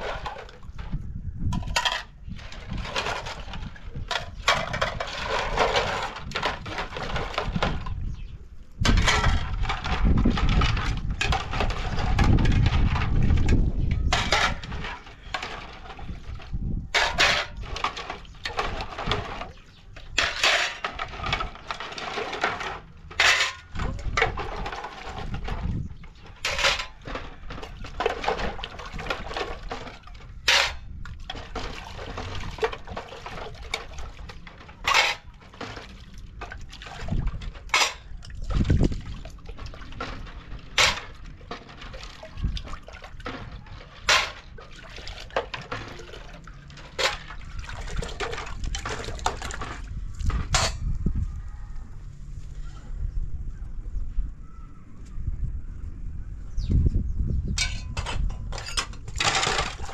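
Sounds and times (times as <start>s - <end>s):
water sounds: 23.8s - 50.7s.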